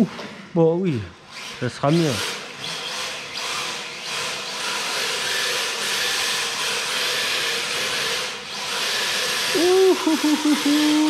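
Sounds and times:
rc car motor whirring: 1.3 - 11.0
man's drawn-out wavering voice: 9.6 - 11.0.

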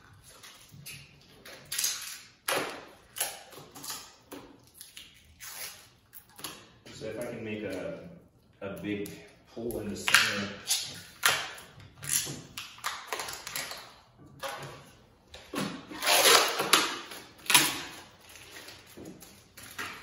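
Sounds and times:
plastic film tearing off: 15.9 - 20.0.

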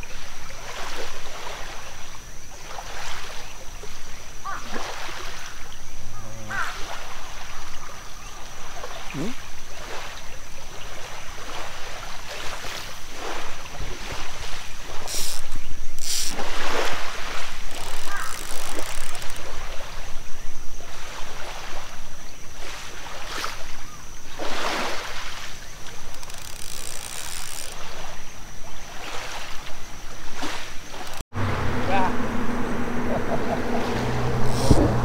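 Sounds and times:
water lapping around wading legs: 0.0 - 31.2, 33.2 - 35.0
water swishes: 0.0 - 35.0
sharp clicks: 17.7 - 19.5, 26.0 - 27.8
wind rumbling on microphone: 31.1 - 35.0.

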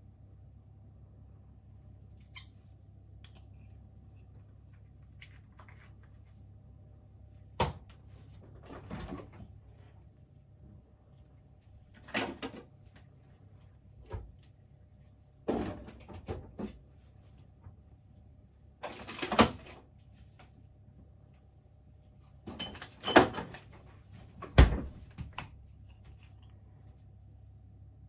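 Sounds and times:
low steady hum: 0.0 - 28.0
kitchen items knocking and clattering: 15.4 - 16.8.

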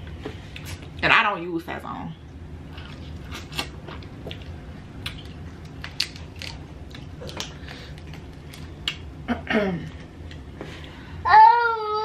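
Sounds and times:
crackles of chewing shrimp shells: 2.7 - 9.1.

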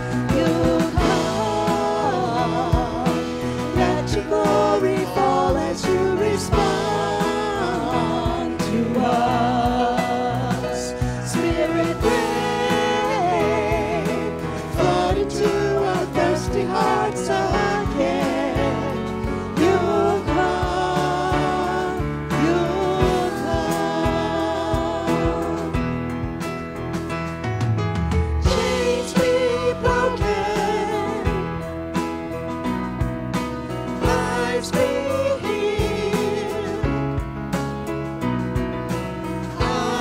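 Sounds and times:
singers with vibrato: 0.0 - 26.0, 28.4 - 31.7
electric bass: 0.0 - 40.0
electric guitar: 0.0 - 40.0.

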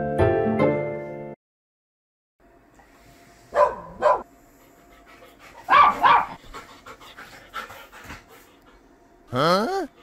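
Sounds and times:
dog panting: 4.5 - 9.0.

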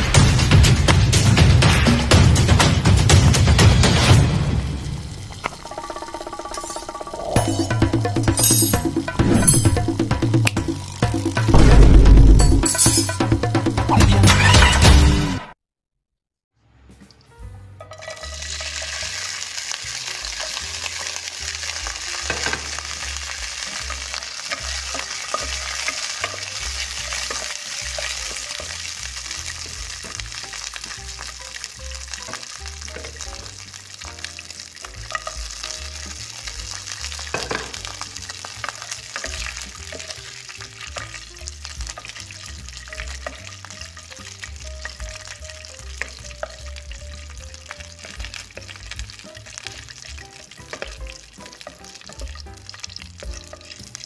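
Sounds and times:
food sizzling in hot oil: 0.0 - 13.4, 17.8 - 54.0
soft background music: 16.7 - 54.0.

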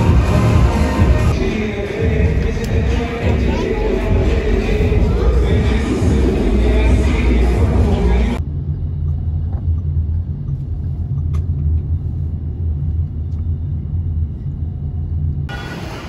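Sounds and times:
busy street sound: 0.0 - 8.5, 15.4 - 16.0
car driving rumble from inside: 2.2 - 15.5.

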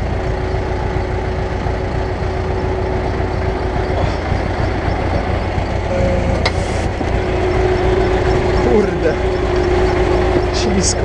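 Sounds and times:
tractor diesel engine running: 0.0 - 11.0
steady tone: 2.2 - 11.0.

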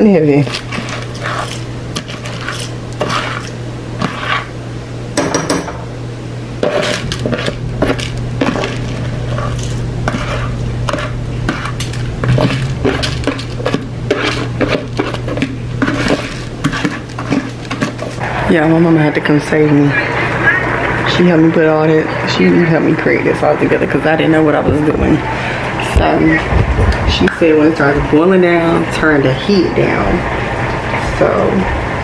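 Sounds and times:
steady low hum: 0.0 - 32.0
pots and pans clattering: 10.9 - 18.2.

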